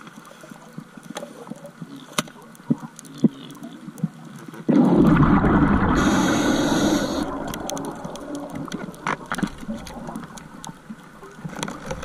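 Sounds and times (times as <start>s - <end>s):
underwater bubbles rushing: 3.6s - 12.0s
gear clicks and knocks: 11.4s - 12.0s.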